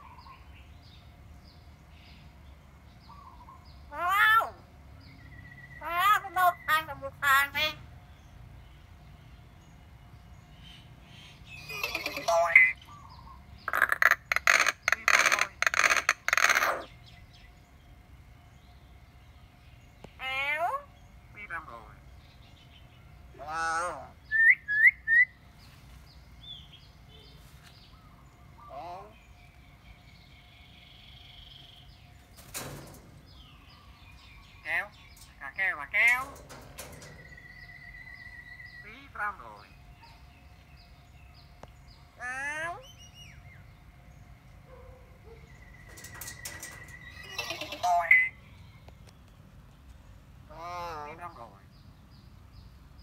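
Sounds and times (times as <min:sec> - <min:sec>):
myna bird call: 0:10.6 - 0:17.0, 0:44.7 - 0:48.9
faint bird chirps: 0:39.7 - 0:49.3.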